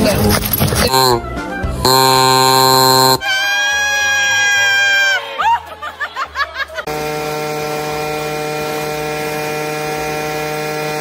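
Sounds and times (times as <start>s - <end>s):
leaf blower running: 6.9s - 11.0s.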